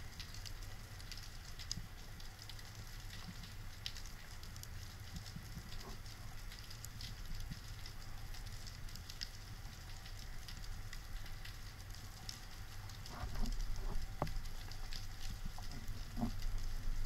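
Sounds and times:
underwater rumble: 5.3s - 17.0s.

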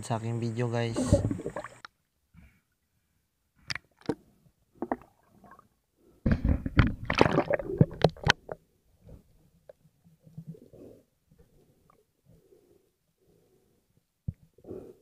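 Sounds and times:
water gurgling: 0.7s - 1.9s, 6.3s - 9.3s.

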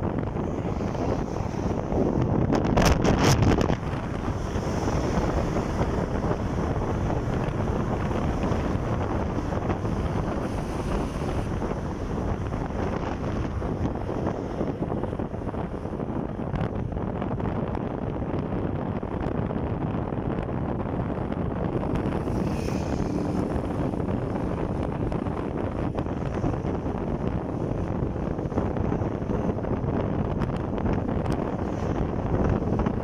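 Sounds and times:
road noise: 0.0s - 33.0s
wind rushing over microphone: 0.0s - 33.0s
motorcycle engine: 21.8s - 28.0s.

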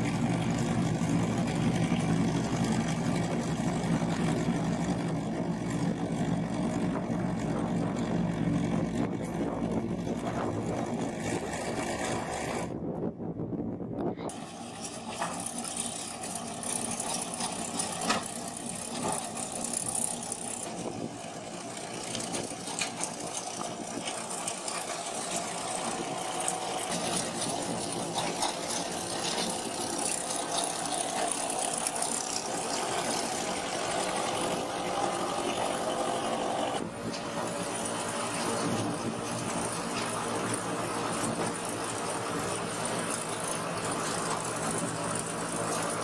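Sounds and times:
tractor engines running: 0.0s - 46.0s
machinery clattering: 14.3s - 46.0s.

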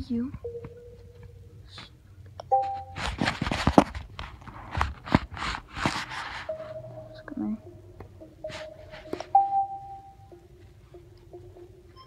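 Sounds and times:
taps on touchscreen: 0.2s - 1.4s, 4.8s - 12.0s
steady menu tone: 0.3s - 1.7s, 2.5s - 3.0s, 6.4s - 12.0s
two-tone chime: 0.4s - 1.5s, 2.5s - 3.0s, 6.4s - 12.0s.

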